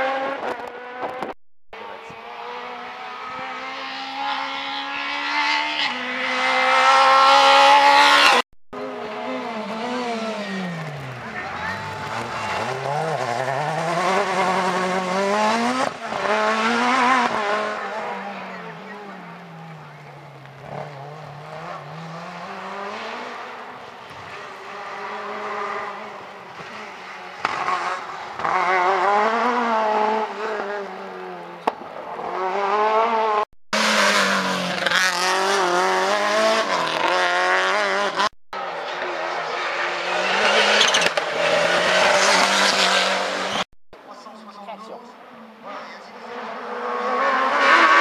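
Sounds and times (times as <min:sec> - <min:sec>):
rally car engines revving: 0:00.0 - 0:48.0.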